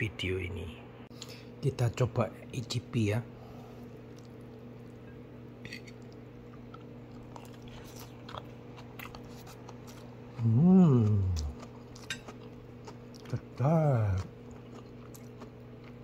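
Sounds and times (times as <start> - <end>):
steady low hum: 0.0 - 16.0
person chewing food: 3.8 - 5.1, 5.7 - 16.0
person humming mmm: 10.4 - 11.6.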